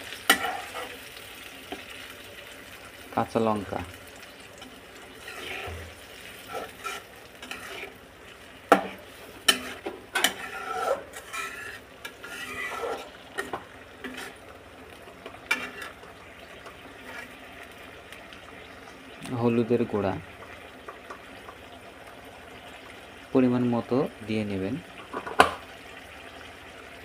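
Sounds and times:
oil sizzling: 0:00.0 - 0:27.0
metal spatula scraping a wok: 0:00.2 - 0:01.0, 0:05.1 - 0:08.0, 0:08.7 - 0:14.4, 0:15.4 - 0:16.1, 0:17.0 - 0:17.4.

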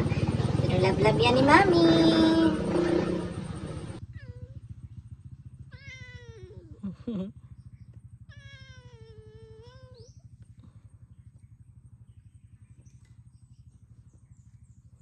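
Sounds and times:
faint low pulsing hum: 0:00.0 - 0:15.0
cat meowing: 0:05.7 - 0:06.8, 0:08.3 - 0:10.0.

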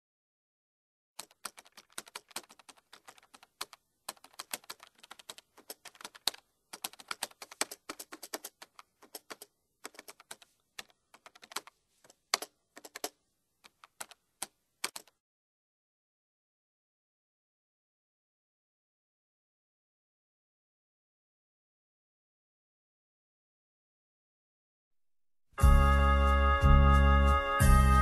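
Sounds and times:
keyboard typing clicks: 0:01.2 - 0:15.2.

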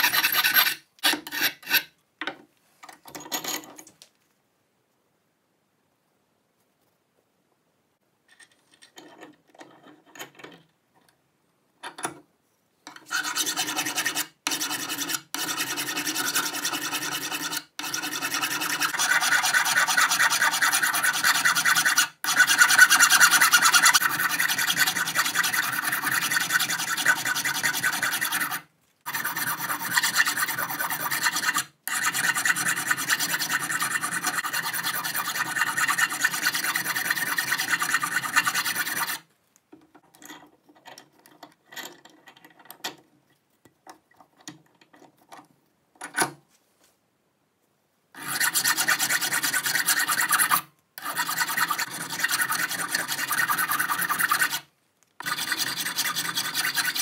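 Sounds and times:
hand file rasping on metal: 0:00.0 - 0:01.9, 0:12.9 - 0:39.2, 0:48.2 - 0:57.0.

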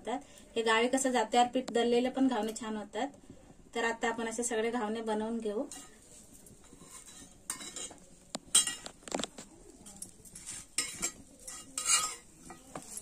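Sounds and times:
metal spatula scraping griddle: 0:05.7 - 0:08.9, 0:10.2 - 0:13.0.

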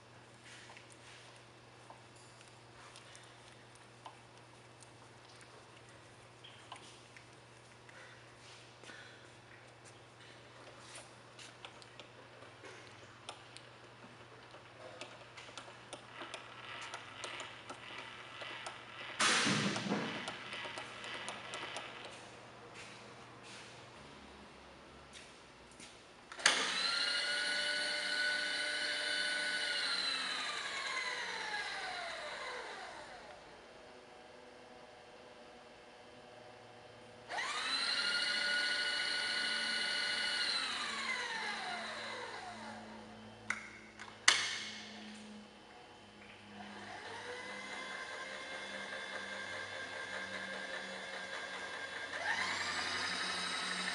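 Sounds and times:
milling machine power feed hum: 0:00.0 - 0:24.8, 0:26.4 - 0:53.9
power feed motor whining: 0:26.4 - 0:33.4, 0:37.3 - 0:43.4, 0:44.8 - 0:53.9.

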